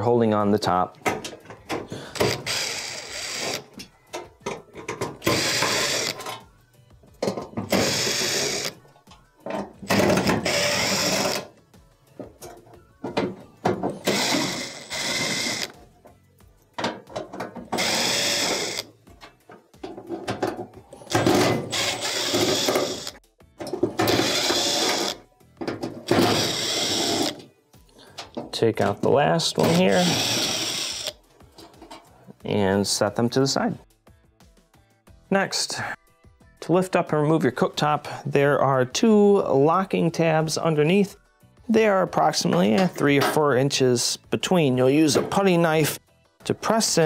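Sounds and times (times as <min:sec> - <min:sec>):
impact driver bursts: 0:05.2 - 0:06.2, 0:07.7 - 0:08.8, 0:09.9 - 0:11.5, 0:14.0 - 0:15.7, 0:17.8 - 0:18.9, 0:21.2 - 0:23.2, 0:24.0 - 0:25.2, 0:26.1 - 0:27.4, 0:29.7 - 0:31.2.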